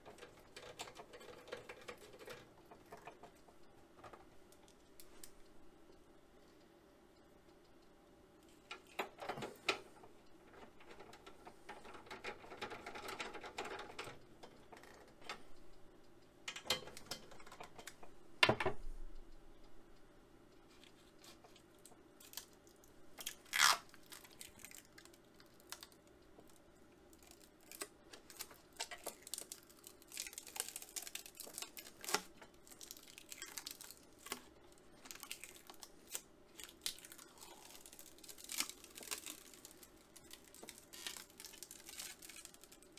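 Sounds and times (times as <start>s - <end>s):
plastic film crinkling and tearing: 22.2s - 42.9s.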